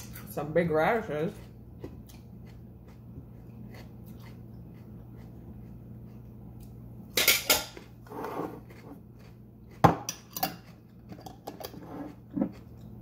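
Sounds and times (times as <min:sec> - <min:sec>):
crunchy food being eaten: 0:01.3 - 0:06.8, 0:07.8 - 0:13.0.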